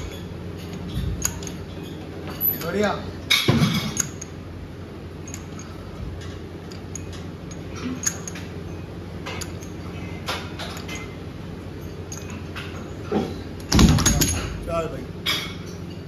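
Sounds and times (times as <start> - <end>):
steady low hum: 0.0 - 16.0
light metallic clinks and clicks: 5.2 - 11.2, 11.8 - 12.9.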